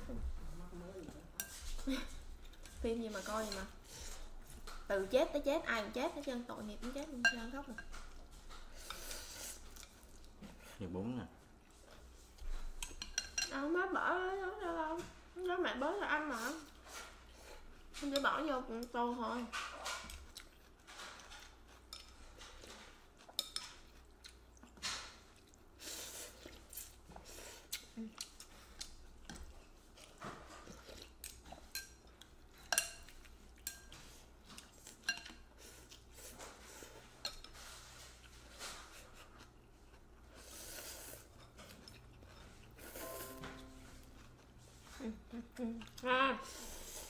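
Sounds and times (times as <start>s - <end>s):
chewing: 18.8s - 46.9s.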